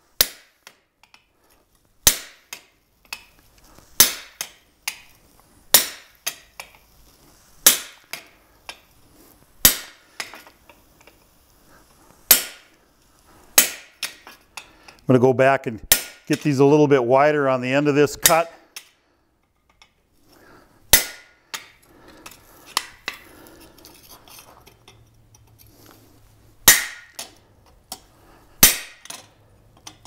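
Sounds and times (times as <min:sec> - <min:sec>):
hammer striking chisel on metal: 0:13.6 - 0:14.2, 0:15.9 - 0:16.4, 0:26.7 - 0:27.3.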